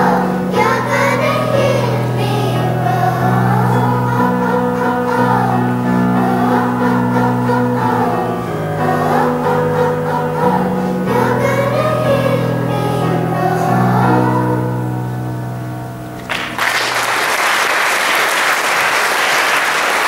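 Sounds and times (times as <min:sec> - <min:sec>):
children's choir singing: 0:00.0 - 0:15.3
audience applause: 0:16.3 - 0:20.0.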